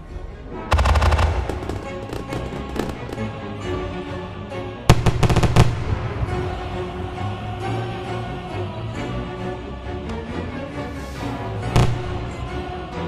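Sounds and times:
background music: 0:00.0 - 0:13.0
fireworks crackling and popping: 0:00.7 - 0:03.4, 0:04.9 - 0:06.0, 0:11.8 - 0:12.3.

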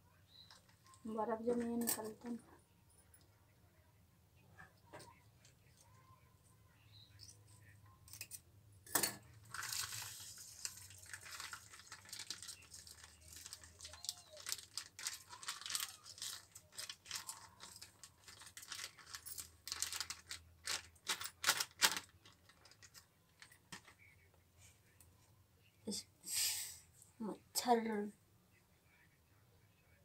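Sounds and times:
plastic packet crinkling: 0:09.4 - 0:24.0.

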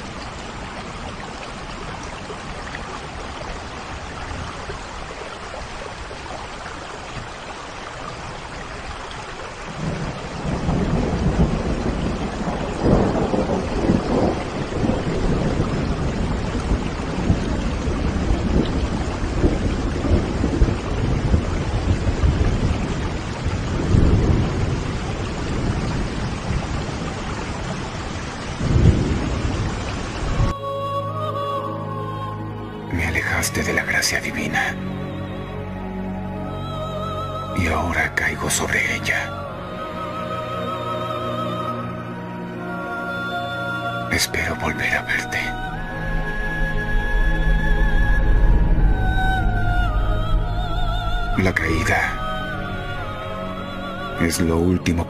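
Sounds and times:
steady rain: 0:00.0 - 0:55.0
rolling thunder: 0:09.7 - 0:30.5, 0:45.4 - 0:54.2.

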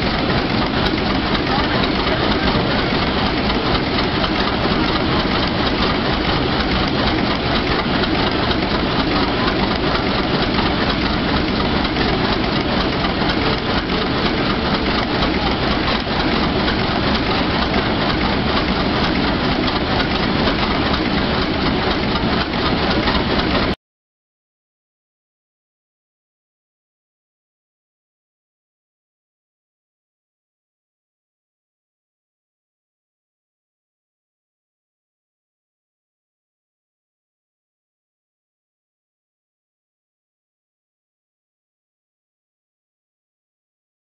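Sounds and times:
engine running steadily: 0:00.0 - 0:23.8.

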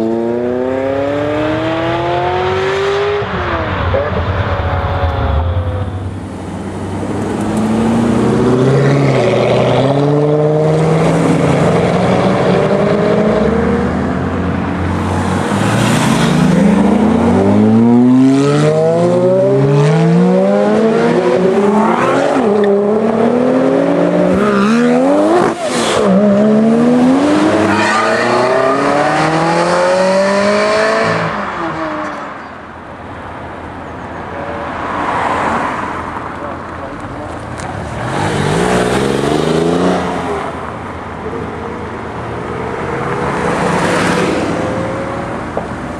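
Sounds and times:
sports car engines accelerating: 0:00.0 - 0:32.4, 0:33.8 - 0:45.9.

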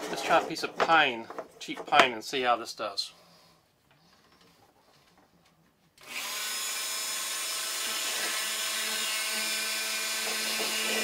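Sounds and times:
rotary tool whining: 0:06.0 - 0:11.0.

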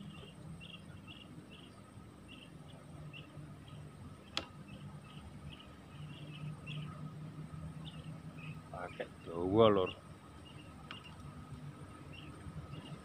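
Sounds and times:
small bird chirping: 0:00.0 - 0:11.3, 0:11.9 - 0:13.0
faint low hum: 0:00.0 - 0:13.0
sharp click: 0:04.3 - 0:04.6.

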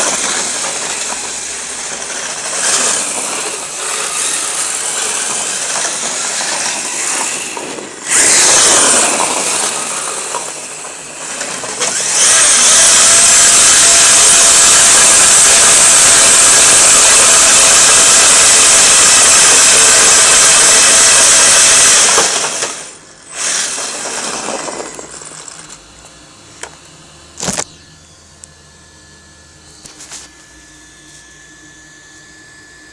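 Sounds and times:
tyres scrubbing on concrete: 0:00.0 - 0:22.7, 0:23.4 - 0:25.7
electric motor whining: 0:00.0 - 0:32.9
rushing hiss: 0:02.1 - 0:22.8.

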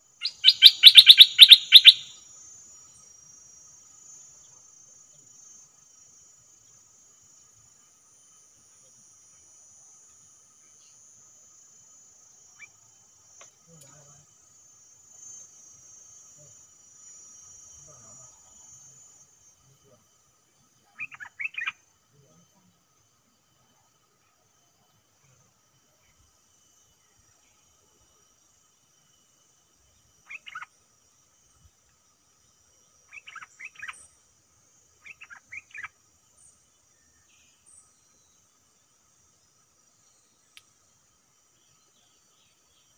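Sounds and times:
insects droning: 0:00.0 - 0:42.9
bird singing bubbling phrases: 0:00.2 - 0:02.1
rising chirp: 0:00.2 - 0:02.1.

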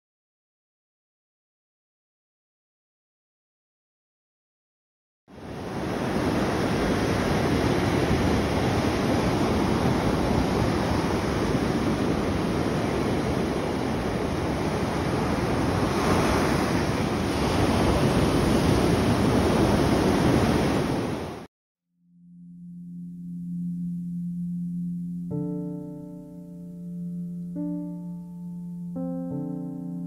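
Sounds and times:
surf washing up a beach: 0:05.3 - 0:21.5.

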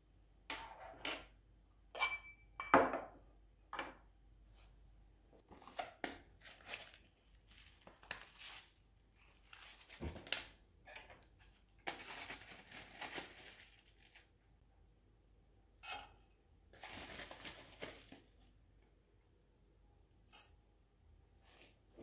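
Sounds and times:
foil pouch crinkling: 0:06.5 - 0:10.5, 0:11.9 - 0:14.3, 0:16.8 - 0:18.3.

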